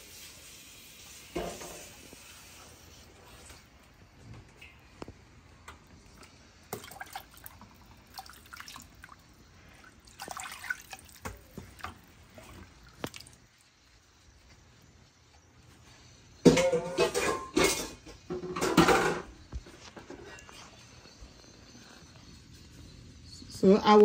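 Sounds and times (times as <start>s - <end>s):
stock pouring and splashing: 6.0s - 13.7s.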